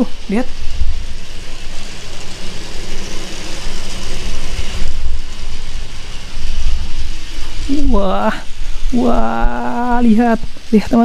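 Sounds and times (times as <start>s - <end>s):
low rumble: 0.0s - 11.0s
toy train motors whirring: 0.0s - 11.0s.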